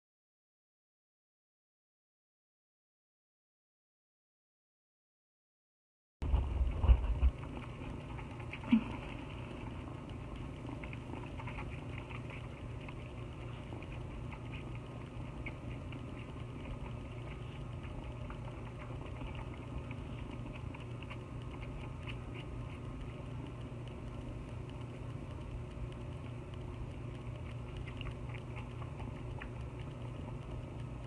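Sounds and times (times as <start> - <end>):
low hum: 6.2 - 31.0
kitten sucking from bottle: 7.1 - 31.0.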